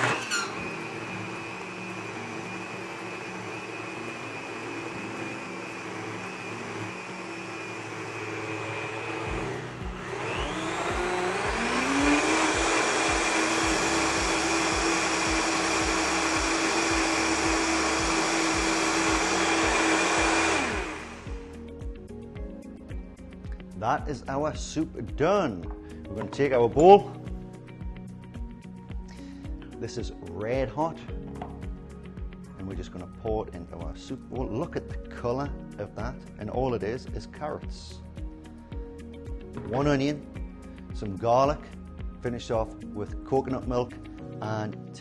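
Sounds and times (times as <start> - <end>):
blender motor whining: 0.0 - 21.6.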